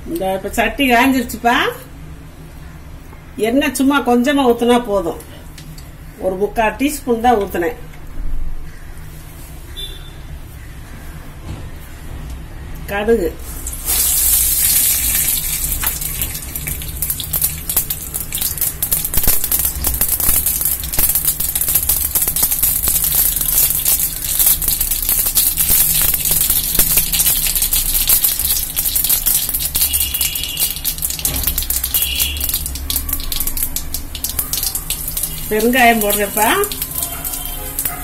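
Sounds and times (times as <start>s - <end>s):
mustard seeds popping in hot oil: 13.6s - 38.0s.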